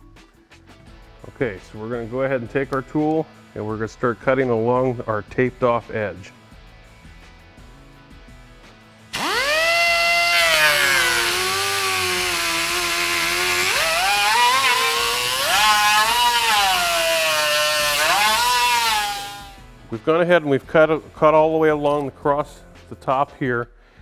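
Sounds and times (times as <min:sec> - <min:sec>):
pneumatic cut-off wheel whining: 0:09.1 - 0:19.6.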